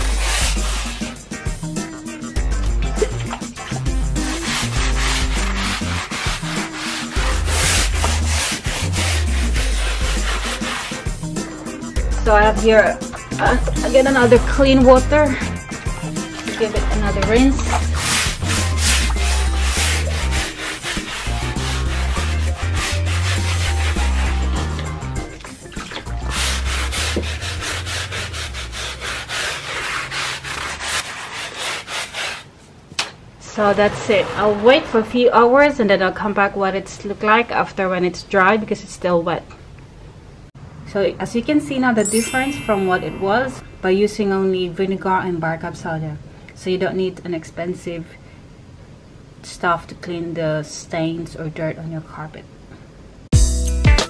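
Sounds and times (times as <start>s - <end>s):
brush scrubbing wet carpet: 0.0s - 1.8s, 2.4s - 32.5s
background music with bass: 0.0s - 29.3s, 53.3s - 54.0s.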